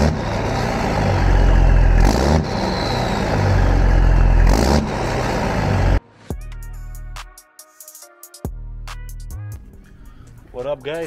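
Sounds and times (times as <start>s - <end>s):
diesel truck engine revving: 0.0s - 6.0s.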